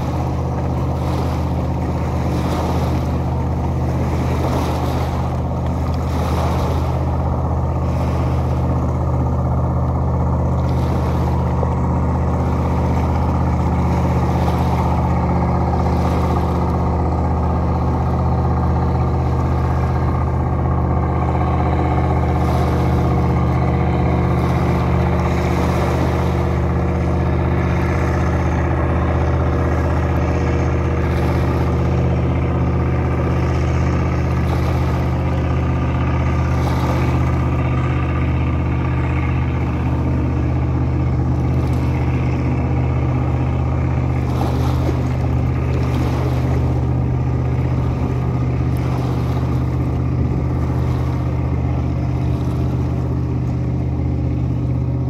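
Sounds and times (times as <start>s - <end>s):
water washing on rocks: 0.0s - 53.1s
engine running steadily: 0.0s - 55.0s.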